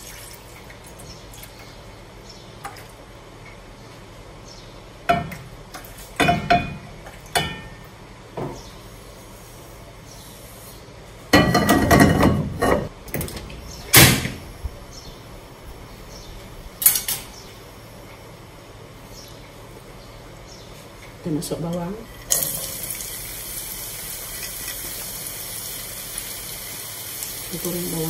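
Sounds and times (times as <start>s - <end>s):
metal cookware clanking: 6.2s - 7.8s, 11.4s - 12.9s.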